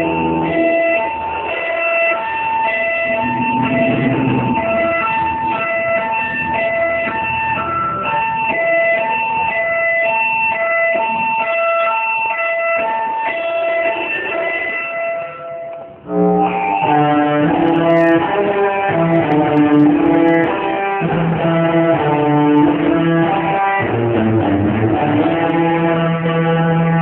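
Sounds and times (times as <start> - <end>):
held high guitar notes: 0.0 - 27.0
rock band music: 0.1 - 8.6, 16.1 - 27.0.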